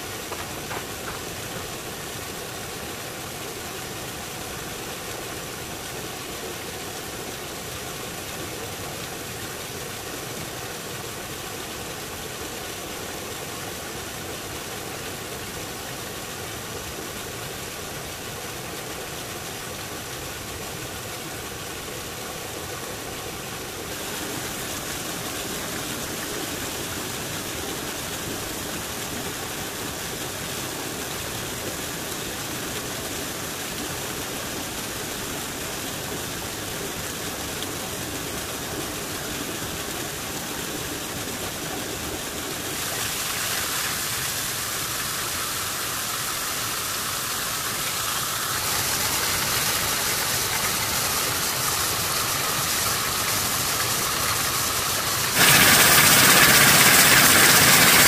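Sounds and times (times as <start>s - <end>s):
constant hiss: 0.0s - 58.0s
engine running: 48.6s - 58.0s.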